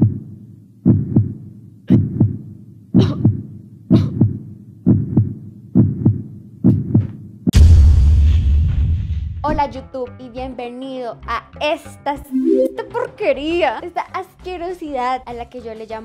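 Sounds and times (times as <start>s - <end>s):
heartbeat thumps: 0.0s - 2.4s, 3.0s - 7.1s.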